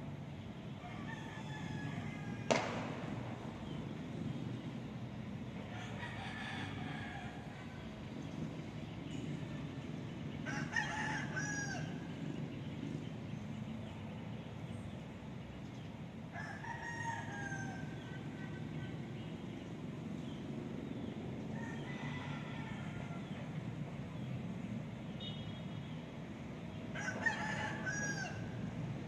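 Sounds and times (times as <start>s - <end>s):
rooster crowing: 0.8s - 2.8s, 5.7s - 7.8s, 10.4s - 12.1s, 16.3s - 18.2s, 21.6s - 23.4s, 27.0s - 28.6s
steady low rumble: 1.9s - 6.1s.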